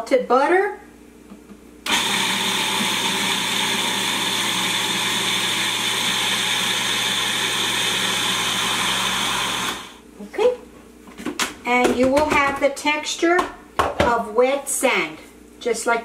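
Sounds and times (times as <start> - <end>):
food processor humming: 1.9 - 10.0.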